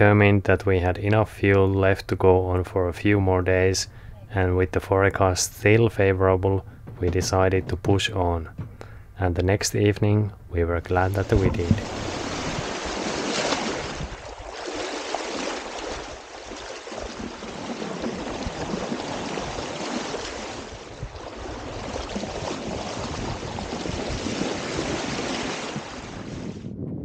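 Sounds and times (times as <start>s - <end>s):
seawater rushing along a hull: 10.9s - 26.6s.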